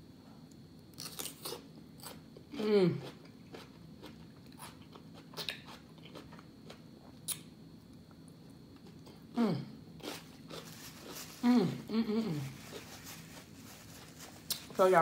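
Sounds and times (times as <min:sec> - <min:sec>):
person chewing food: 0:02.9 - 0:07.5, 0:10.0 - 0:11.4
hummed vocal sound: 0:09.3 - 0:09.8, 0:11.4 - 0:12.6.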